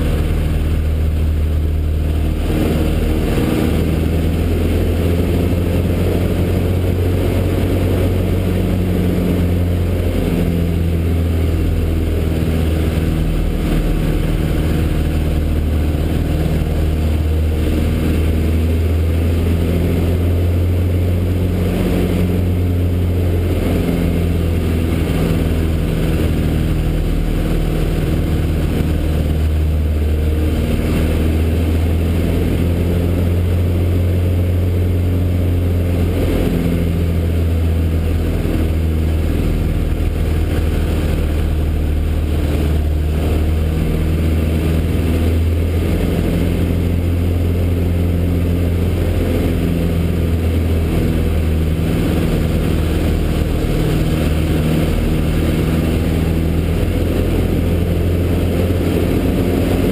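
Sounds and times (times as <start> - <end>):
airplane engine and propeller drone: 0.0 - 59.9
rushing air noise: 0.0 - 59.9.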